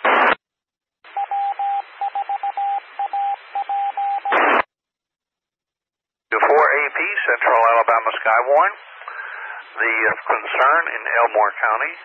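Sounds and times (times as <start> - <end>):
radio squelch noise burst: 0.0 - 0.4, 4.2 - 4.7, 6.4 - 12.0
hissing radio carrier: 6.3 - 12.0.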